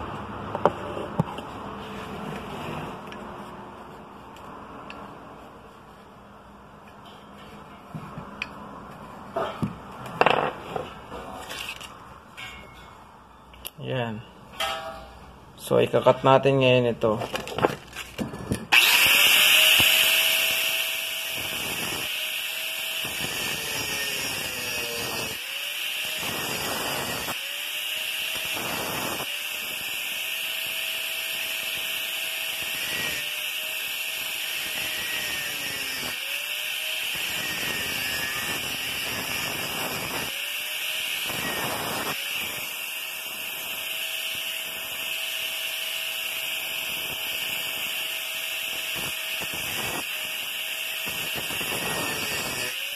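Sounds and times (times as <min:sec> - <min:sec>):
angle grinder cutting metal: 0:18.7 - 0:52.9.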